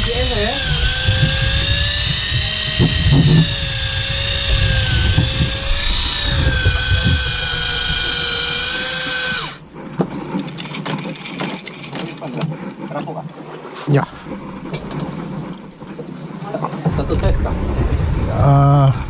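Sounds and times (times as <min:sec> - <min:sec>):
electric fishing reel motor whine: 0:00.0 - 0:12.4.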